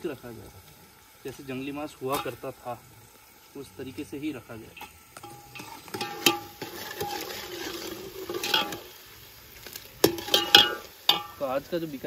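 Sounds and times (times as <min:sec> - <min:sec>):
onions sizzling in oil: 0:00.0 - 0:12.0
ladle scraping metal pot: 0:04.7 - 0:11.4.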